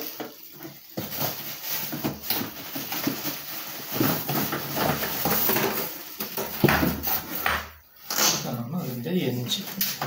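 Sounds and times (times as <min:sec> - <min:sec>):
plastic bag rustling and crinkling: 0:00.0 - 0:10.0.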